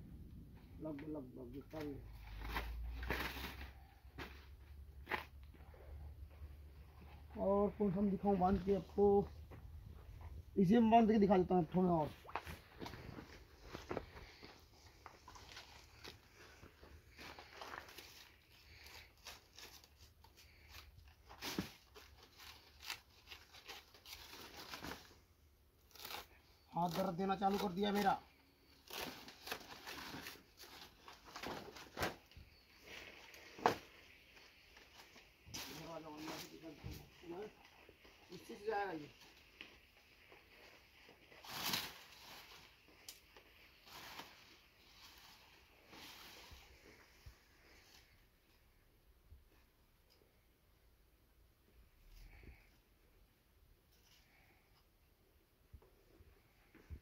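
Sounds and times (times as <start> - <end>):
dry leaves crackling and rustling: 41.4 - 42.7.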